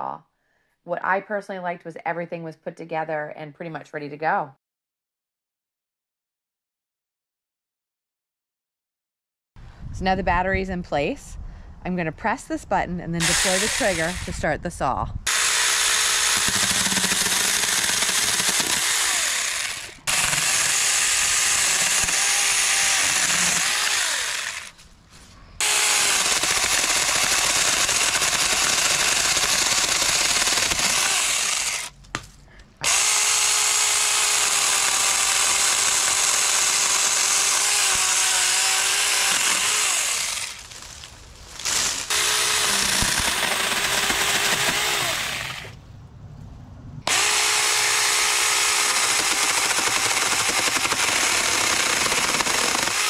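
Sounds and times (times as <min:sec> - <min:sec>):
chainsaw cutting branches: 0:13.2 - 0:14.4, 0:15.3 - 0:24.8, 0:25.6 - 0:32.0, 0:32.8 - 0:45.8, 0:47.1 - 0:53.0.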